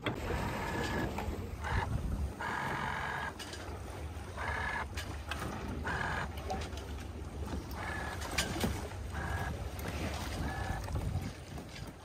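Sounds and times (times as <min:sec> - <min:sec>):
wind rumble on microphone: 0:00.0 - 0:03.1, 0:07.5 - 0:12.0
water rushing along a hull: 0:00.0 - 0:12.0.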